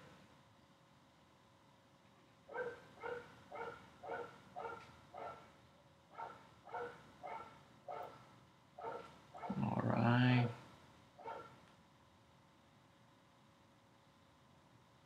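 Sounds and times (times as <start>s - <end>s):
dog barking: 2.5s - 5.5s, 6.1s - 8.2s, 8.8s - 9.8s, 11.2s - 11.6s.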